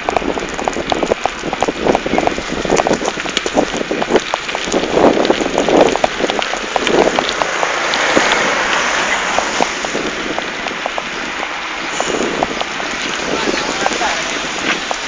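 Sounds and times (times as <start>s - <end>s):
camera rattling with clicks: 0.0s - 8.8s
wind rushing over microphone: 0.0s - 15.0s
car passing: 1.8s - 15.0s.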